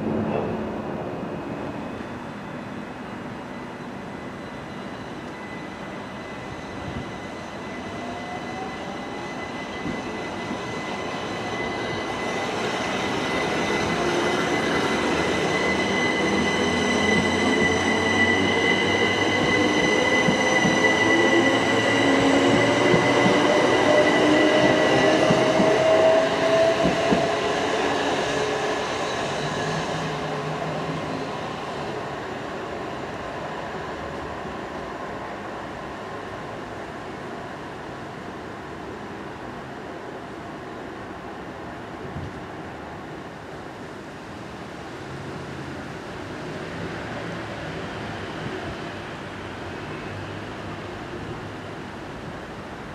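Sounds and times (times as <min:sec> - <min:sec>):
train rumble: 0:12.8 - 0:32.1.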